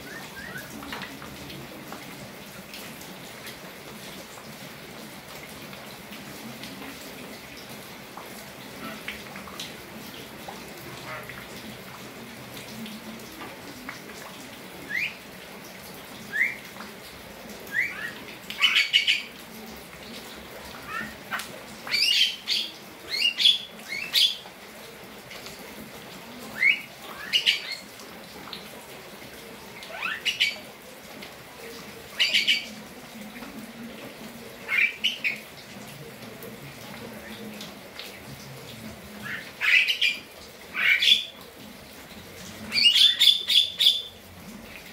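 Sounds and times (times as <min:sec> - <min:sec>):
mynas harsh squawking calls: 0:39.2 - 0:41.4.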